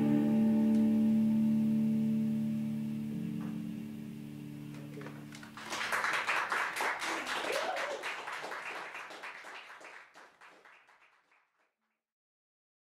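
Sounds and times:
electric guitar tone: 0:00.0 - 0:05.5
audience applauding: 0:04.7 - 0:11.5.

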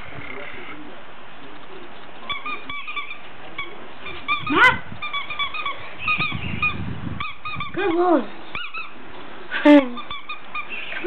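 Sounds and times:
squeaky dog toy squeaking: 0:02.3 - 0:08.9.

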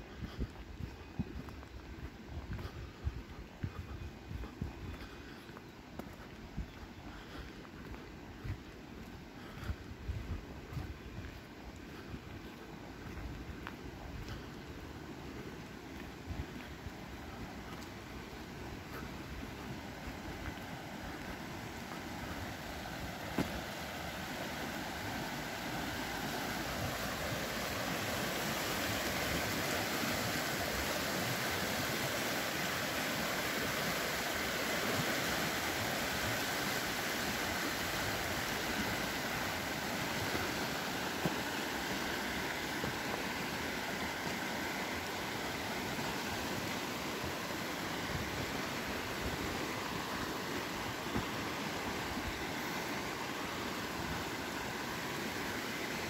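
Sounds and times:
river rushing over stones: 0:11.3 - 0:56.0.

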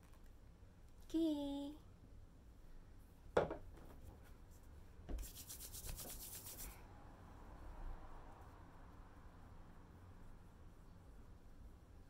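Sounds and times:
light knock: 0:03.4 - 0:03.6
hands rubbing: 0:05.2 - 0:06.8.

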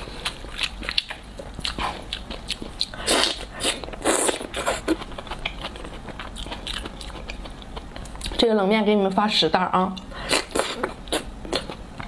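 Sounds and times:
chewing and wet mouth noises: 0:00.0 - 0:08.4.

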